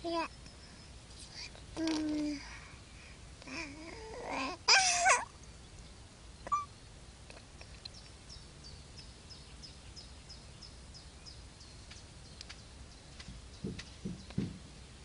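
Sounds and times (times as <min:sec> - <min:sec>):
high falling chirps: 0:06.4 - 0:06.8
short squeak: 0:06.5 - 0:06.7.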